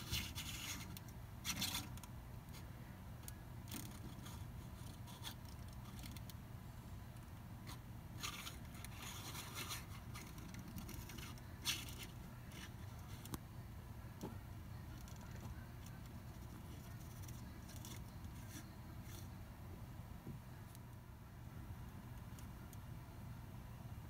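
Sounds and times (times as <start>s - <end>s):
handling scraping and rubbing: 0.0s - 2.8s, 7.6s - 13.5s, 14.2s - 19.5s
low steady hum: 0.0s - 24.0s.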